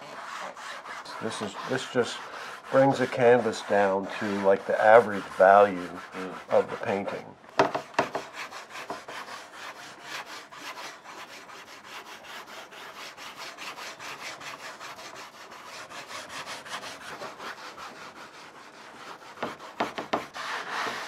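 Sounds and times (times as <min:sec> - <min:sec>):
wet pad scrubbing on canvas: 0:00.0 - 0:07.2.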